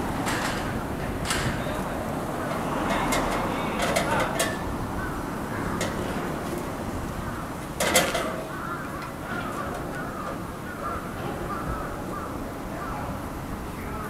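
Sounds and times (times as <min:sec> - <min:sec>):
short caw-like calls: 0:08.4 - 0:12.4.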